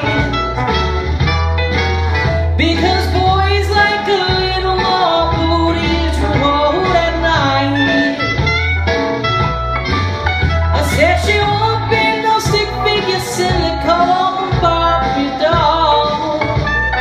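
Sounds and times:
man singing crooner style: 0:00.0 - 0:00.5, 0:02.6 - 0:08.4, 0:10.8 - 0:16.8
retro jazz backing: 0:00.0 - 0:17.0.

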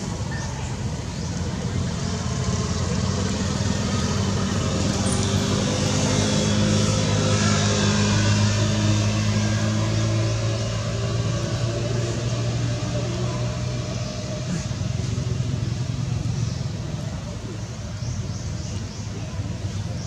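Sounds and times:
vehicle engine humming: 0:00.0 - 0:20.0.

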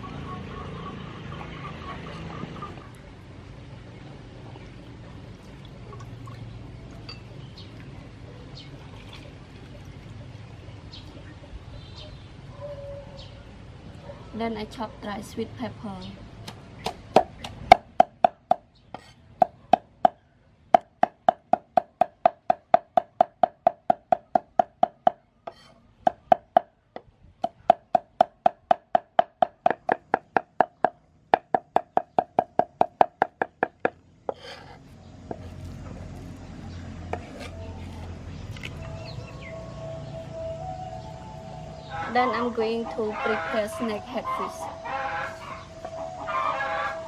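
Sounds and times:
cleaver chopping on wooden board: 0:16.4 - 0:20.2, 0:20.8 - 0:34.4.

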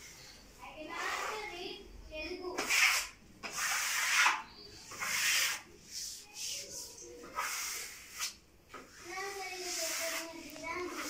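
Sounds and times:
tool rubbing across wallpaper: 0:00.9 - 0:01.5, 0:02.6 - 0:11.0.

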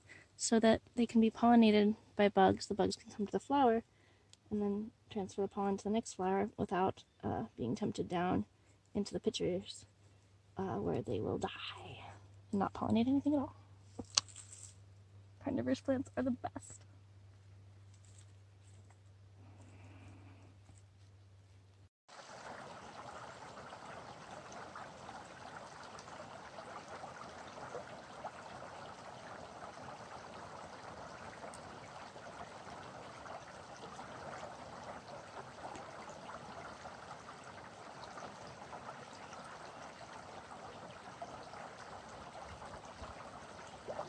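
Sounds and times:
stream flowing over stones: 0:22.1 - 0:44.0.

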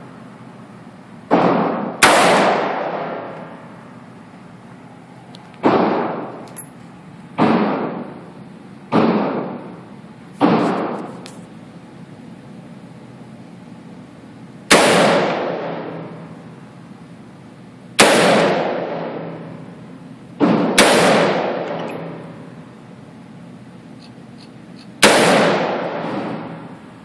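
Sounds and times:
rifle shots echoing indoors: 0:01.3 - 0:03.8, 0:14.7 - 0:16.3, 0:18.0 - 0:19.6, 0:20.4 - 0:22.4, 0:25.0 - 0:26.7.

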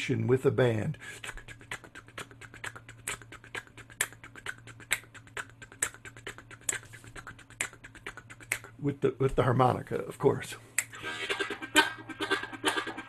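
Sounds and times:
rapid tongue ticks: 0:01.0 - 0:08.9.

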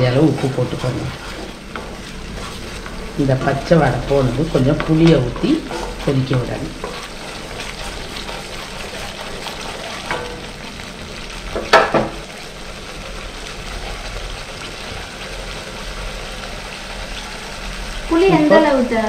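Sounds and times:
wooden spatula scraping pan: 0:00.0 - 0:12.4
gravy sizzling and bubbling: 0:00.0 - 0:19.0.

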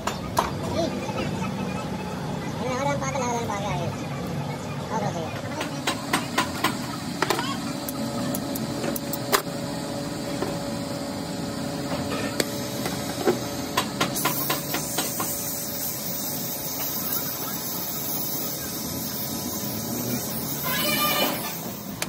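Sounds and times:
gas torch flame hissing: 0:05.6 - 0:22.0.

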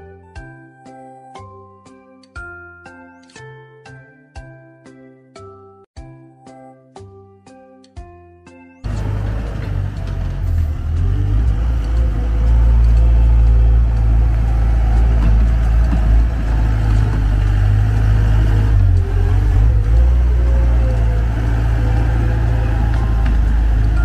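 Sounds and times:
diesel engine droning: 0:08.8 - 0:24.0.

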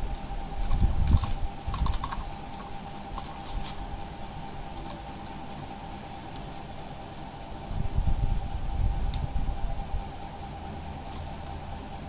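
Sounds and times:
ball rattling around plastic track: 0:00.7 - 0:04.2.

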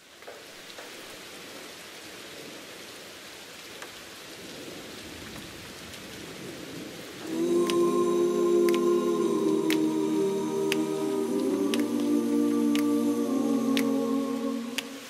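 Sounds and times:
rain hissing: 0:04.0 - 0:15.0.

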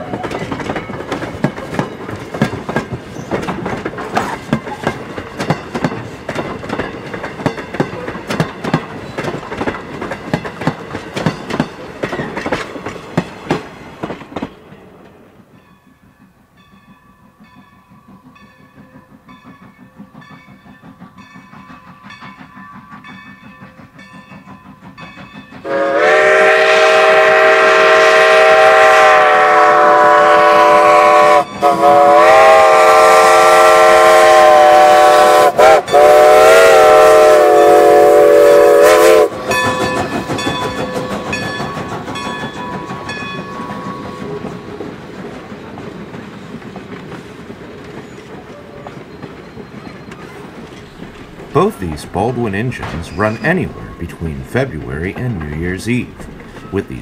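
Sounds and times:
steam locomotive exhaust beat: 0:00.0 - 0:57.0
train wheels clicking on rails: 0:00.0 - 0:57.0
steam whistle blast: 0:25.6 - 0:39.8.

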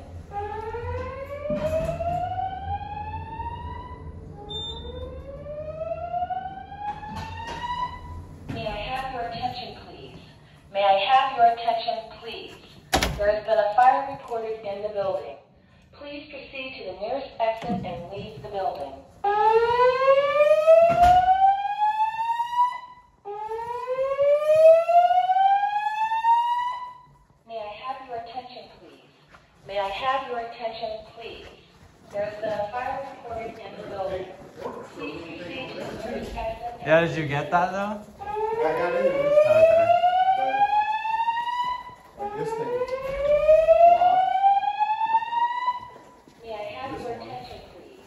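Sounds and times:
fire alarm whoop tone: 0:00.2 - 0:08.6, 0:19.2 - 0:27.2, 0:38.2 - 0:46.3.

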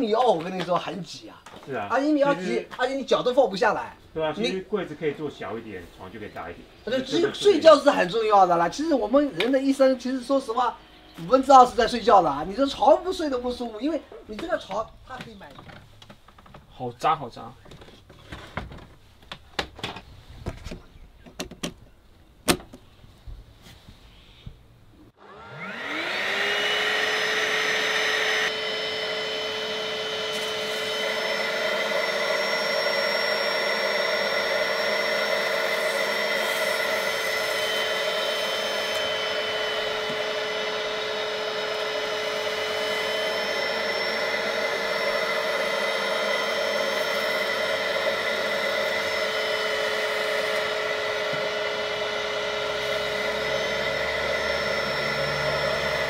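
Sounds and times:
spot cleaner motor whining: 0:25.2 - 0:56.0
suction nozzle on fabric: 0:25.5 - 0:56.0.

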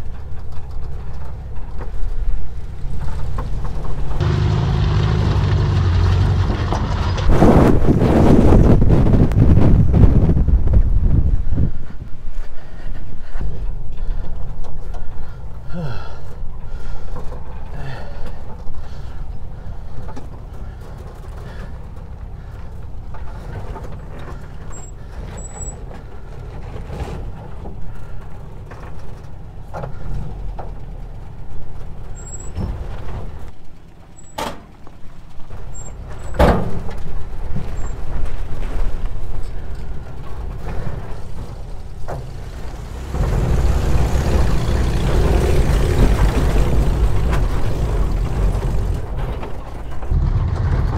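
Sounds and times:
van engine running: 0:00.0 - 0:50.9.

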